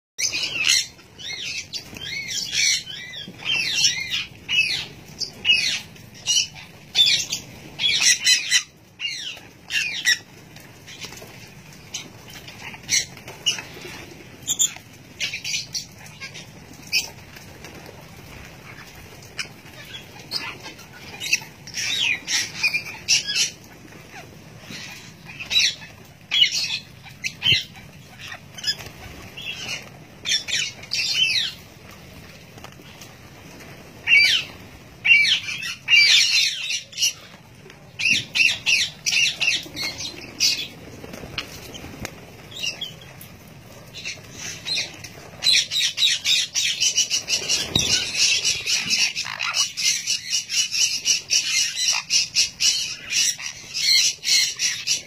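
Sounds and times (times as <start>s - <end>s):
parrots screeching: 0.2s - 10.3s, 34.0s - 37.3s, 44.0s - 55.0s.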